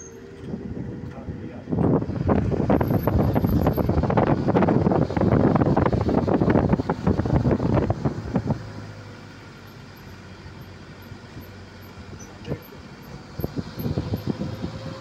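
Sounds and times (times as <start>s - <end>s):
moving vehicle rumble: 0.0s - 15.0s
wind buffeting microphone: 0.4s - 9.1s, 13.1s - 15.0s.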